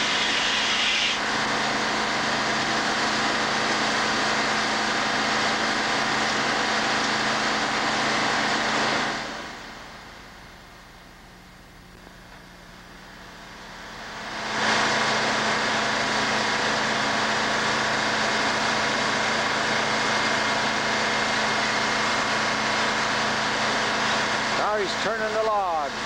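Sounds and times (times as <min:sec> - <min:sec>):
circular saw machine running: 0:00.0 - 0:10.0, 0:13.6 - 0:26.0.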